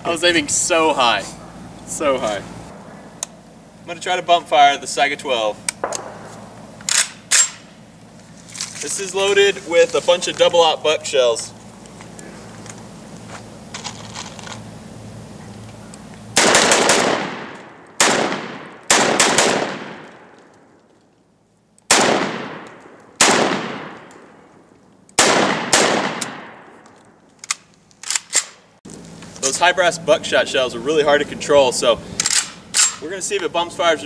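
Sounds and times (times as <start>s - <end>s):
gun handling clicks: 5.6s - 6.2s, 6.8s - 7.7s, 26.2s - 29.2s, 32.2s - 33.0s
shotgun shots echoing: 5.8s - 7.7s, 16.4s - 20.4s, 21.9s - 24.5s, 25.2s - 26.8s.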